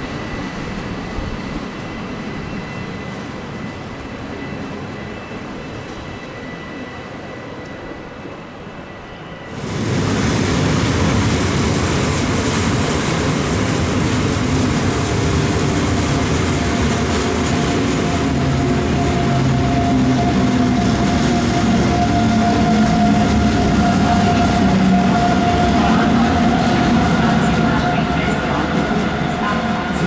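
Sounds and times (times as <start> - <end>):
train whine: 0.0 - 30.0
train wheels rumbling: 9.5 - 30.0.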